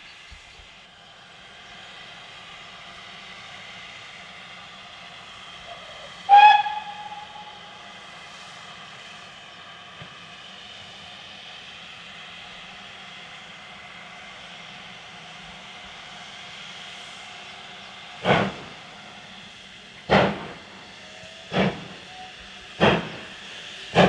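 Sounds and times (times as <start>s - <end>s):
steam locomotive hissing: 0.0s - 24.0s
steam whistle toot: 5.7s - 7.8s.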